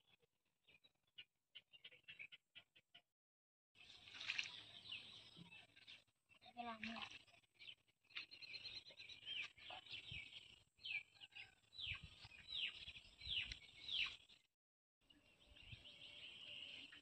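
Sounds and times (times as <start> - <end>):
bird chirping: 3.8 - 14.5, 15.1 - 17.0.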